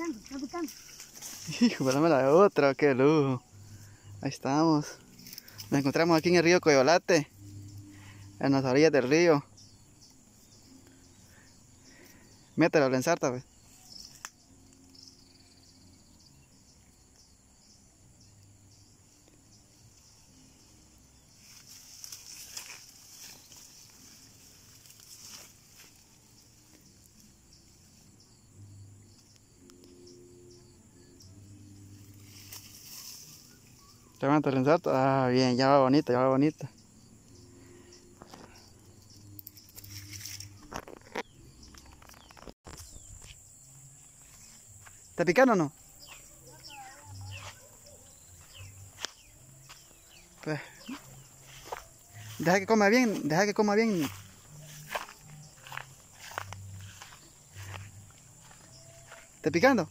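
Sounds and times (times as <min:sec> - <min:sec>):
rustling: 0:00.0 - 0:02.0, 0:21.4 - 0:27.3
tall grass rustling: 0:00.0 - 0:12.4, 0:19.0 - 0:28.5, 0:31.8 - 0:34.2, 0:36.7 - 0:59.9
insects chirping: 0:00.0 - 0:59.9.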